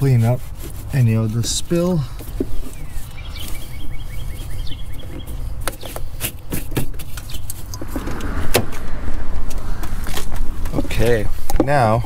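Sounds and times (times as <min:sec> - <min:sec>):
cloth rag wiping: 0:00.0 - 0:02.0
steady low rumble: 0:07.7 - 0:12.0.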